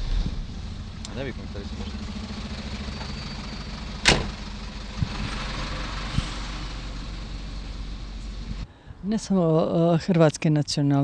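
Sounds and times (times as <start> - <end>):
truck engine idling: 0.0 - 8.7
sharp bang: 4.0 - 4.4.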